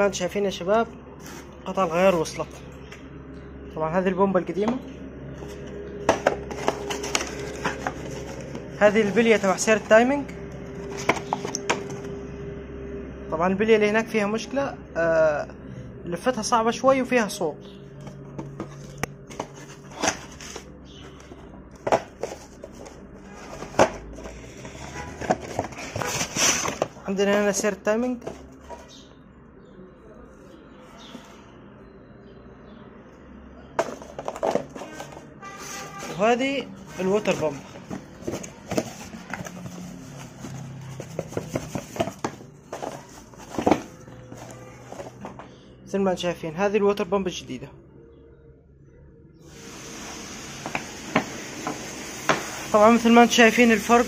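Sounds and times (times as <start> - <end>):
car parts knocking and clunking: 4.6 - 9.2, 10.6 - 12.1, 18.0 - 20.3, 20.9 - 27.0, 33.8 - 35.3, 37.6 - 45.6.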